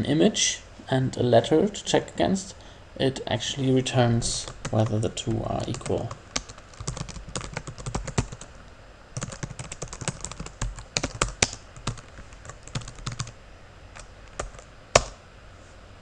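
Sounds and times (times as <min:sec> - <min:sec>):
typing on computer keyboard: 0:05.7 - 0:08.5, 0:09.2 - 0:13.3, 0:14.0 - 0:15.1.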